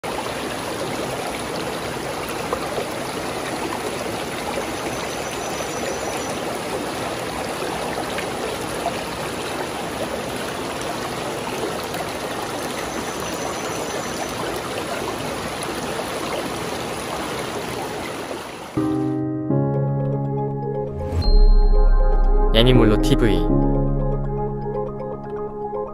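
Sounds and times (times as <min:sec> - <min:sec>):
stream flowing over stones: 0:00.0 - 0:18.8.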